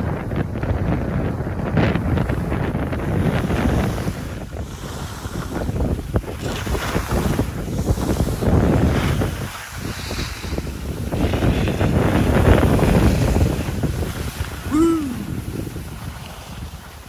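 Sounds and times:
wind buffeting microphone: 0.0s - 17.0s
skis scraping over snow: 3.3s - 14.5s, 15.7s - 16.9s.

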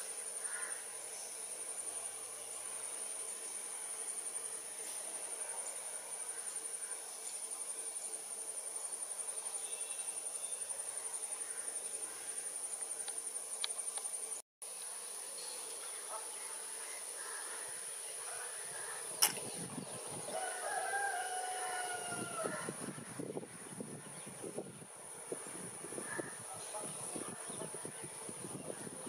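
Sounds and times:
insects trilling: 0.0s - 29.0s
rooster crowing: 20.2s - 22.8s.

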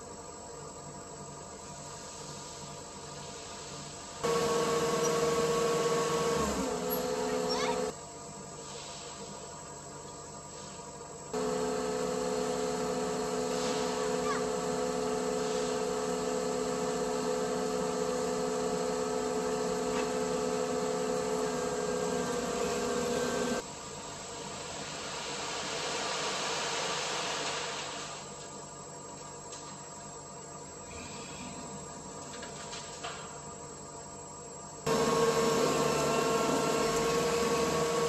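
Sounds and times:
diesel engine running: 4.2s - 8.0s, 11.4s - 23.8s, 34.9s - 38.0s
soft hiss: 8.4s - 11.1s.

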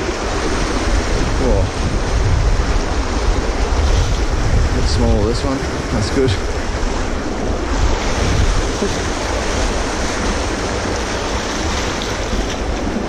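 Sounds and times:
river water rushing over rocks: 0.0s - 13.0s.

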